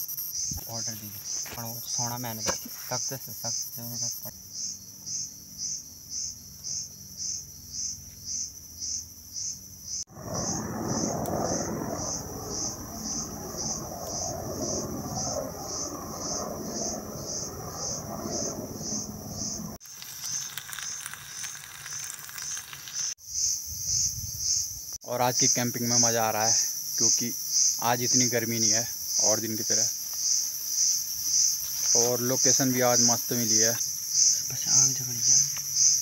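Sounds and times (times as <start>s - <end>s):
insect chirping: 0.0s - 36.0s
wind noise on microphone: 23.6s - 24.9s.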